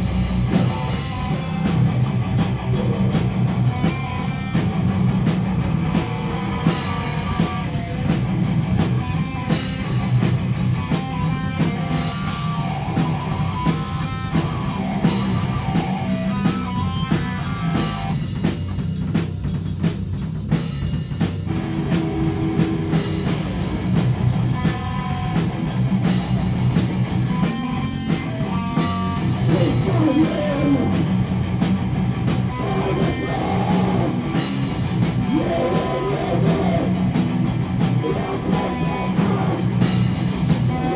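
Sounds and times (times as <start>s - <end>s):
rock band playing: 0.0s - 40.9s.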